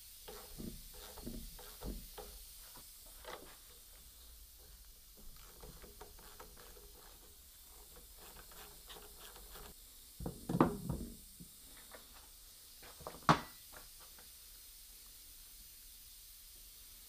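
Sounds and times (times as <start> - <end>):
tool knocks: 13.0 - 13.6.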